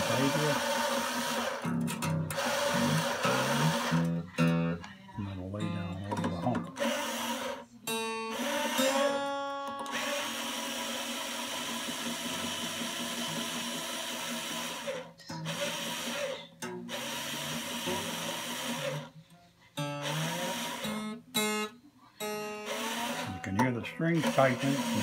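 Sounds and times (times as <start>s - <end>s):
cordless drill whirring: 0.0s - 1.7s, 2.3s - 4.2s, 6.8s - 7.6s, 8.3s - 9.2s, 9.8s - 19.1s, 20.0s - 21.0s, 22.6s - 23.5s, 24.2s - 25.0s.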